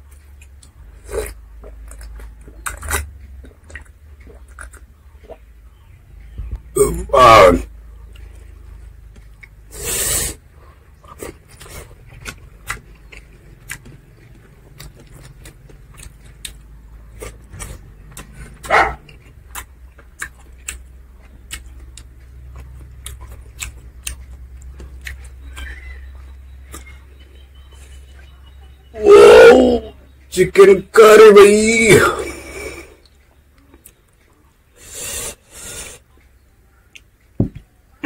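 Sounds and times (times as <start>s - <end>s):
chewing and lip smacking: 0.1s - 5.8s, 8.0s - 9.7s, 10.7s - 28.8s.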